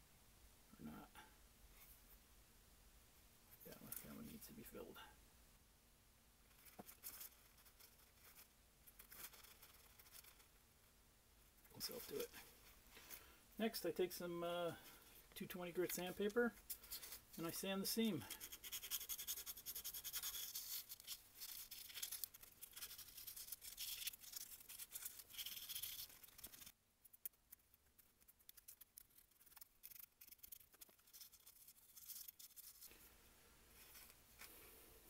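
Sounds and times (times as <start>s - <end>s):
sandpaper rasping: 18.3s - 26.7s.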